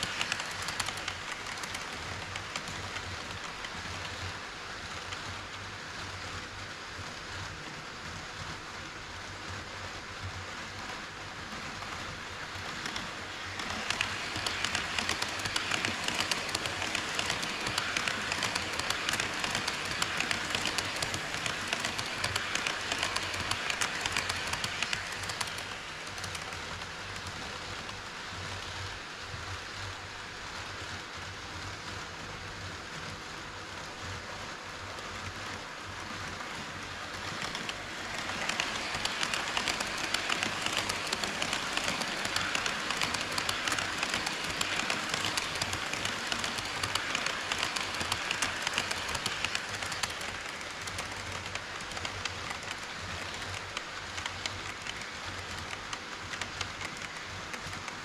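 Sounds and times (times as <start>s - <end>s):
model train wheels rattling: 0.0s - 4.2s, 11.8s - 28.1s, 35.2s - 58.0s.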